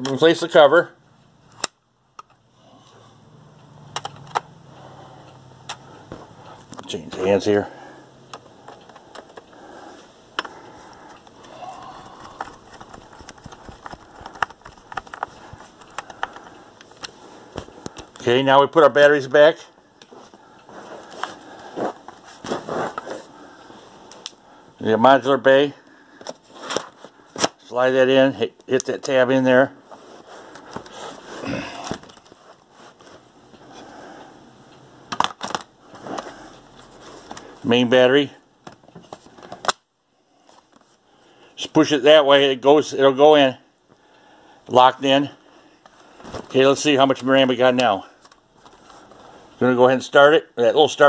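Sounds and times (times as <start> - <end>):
laptop case rustling and scraping: 12.3 - 17.8, 20.2 - 23.4, 29.8 - 33.9, 35.8 - 37.5.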